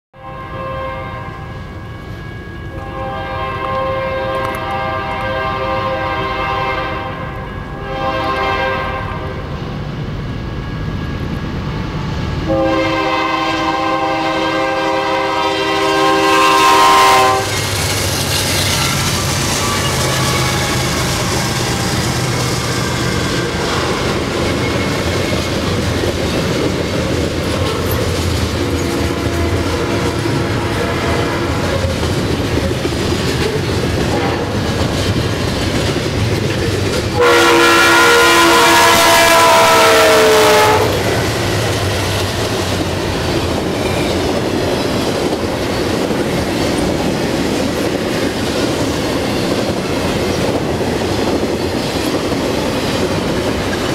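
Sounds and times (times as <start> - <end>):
locomotive horn: 0.2 - 9.5, 12.4 - 17.7, 18.7 - 24.7, 28.8 - 32.0, 34.1 - 34.6, 37.1 - 41.4
train rumble: 0.2 - 53.9
train wheels clattering over rails: 16.3 - 37.2, 40.8 - 53.9.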